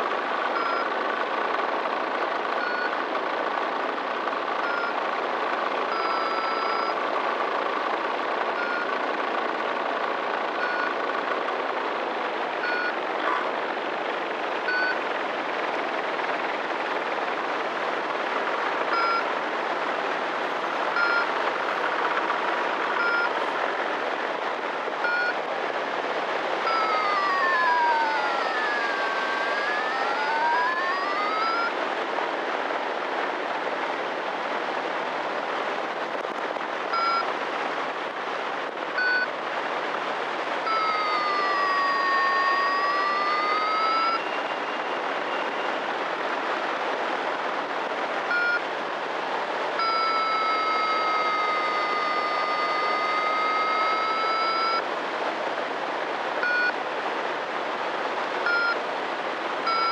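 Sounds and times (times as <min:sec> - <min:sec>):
electronic beeps: 0:00.6 - 0:00.9, 0:05.9 - 0:07.0, 0:12.6 - 0:13.0, 0:21.0 - 0:21.3, 0:23.0 - 0:23.4, 0:26.6 - 0:28.6, 0:29.2 - 0:31.8, 0:40.7 - 0:45.4, 0:49.8 - 0:54.8
long dipping electronic tones: 0:40.6 - 0:44.4, 0:49.8 - 0:54.8.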